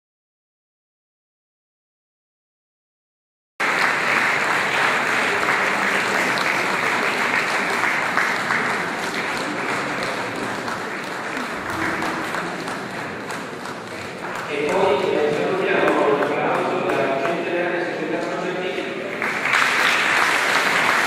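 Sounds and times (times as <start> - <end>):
audience applauding: 3.6 - 17.7, 19.0 - 21.0.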